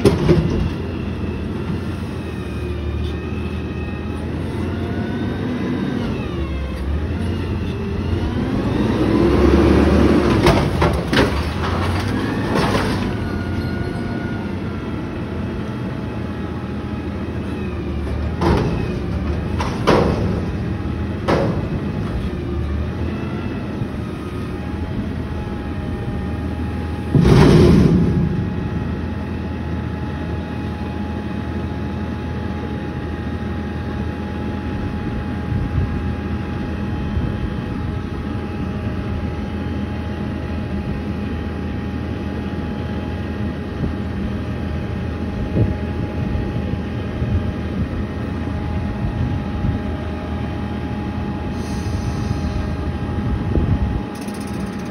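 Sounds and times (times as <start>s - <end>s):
garbage truck engine revving: 4.2s - 15.6s
heavy bang: 27.0s - 29.5s
metal knocks of dumped container: 27.1s - 28.6s.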